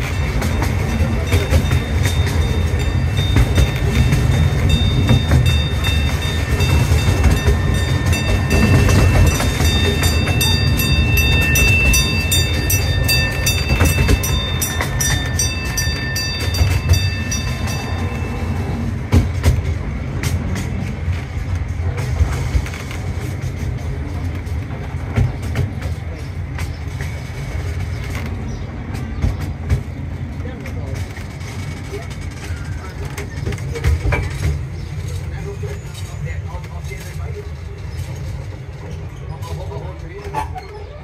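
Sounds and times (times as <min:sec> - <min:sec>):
bell ringing: 0:00.0 - 0:19.0
train cars rumbling and clattering: 0:00.0 - 0:41.0.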